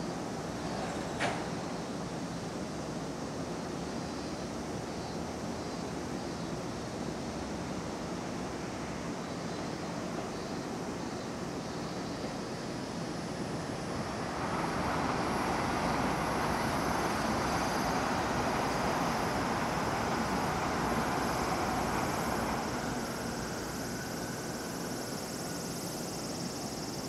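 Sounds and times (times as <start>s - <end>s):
electric train rumble: 6.6s - 27.0s.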